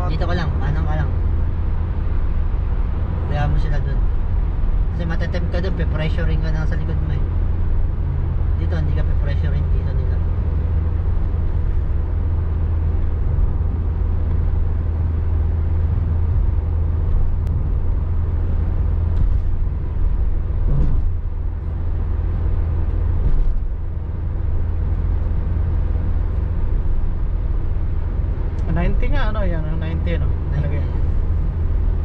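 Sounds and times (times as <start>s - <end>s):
car cabin road rumble: 0.0s - 32.0s
wind noise: 10.0s - 29.2s.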